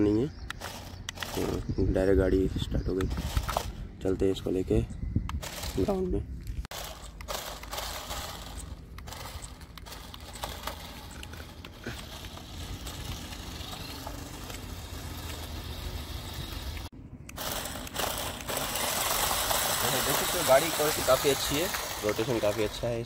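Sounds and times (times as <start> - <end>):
toy car electric motors whirring: 0.0 - 23.0
clicks and rattles: 0.4 - 1.6, 6.7 - 15.6
plastic wheels scraping on concrete: 0.5 - 1.6, 3.0 - 3.8, 5.4 - 23.0.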